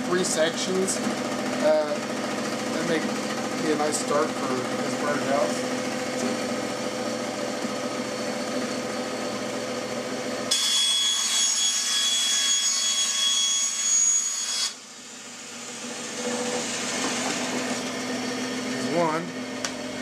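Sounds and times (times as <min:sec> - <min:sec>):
band saw motor hum: 0:00.0 - 0:20.0
saw blade whining through wood: 0:10.4 - 0:19.2.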